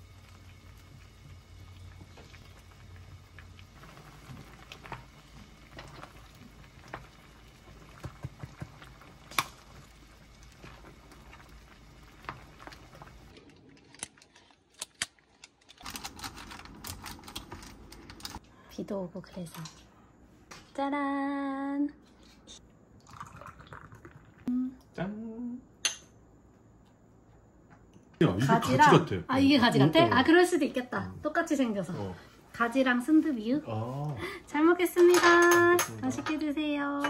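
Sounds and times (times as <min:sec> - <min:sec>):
utensils and dishes clicking: 0:35.0 - 0:36.4.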